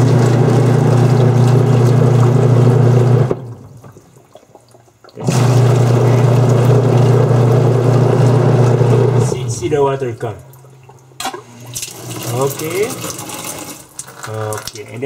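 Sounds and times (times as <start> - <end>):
water rushing: 0.0 - 14.3.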